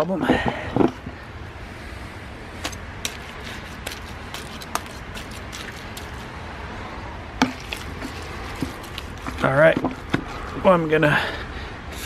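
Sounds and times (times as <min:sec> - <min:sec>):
trowel scraping in soil: 0:02.6 - 0:06.3, 0:07.4 - 0:10.6.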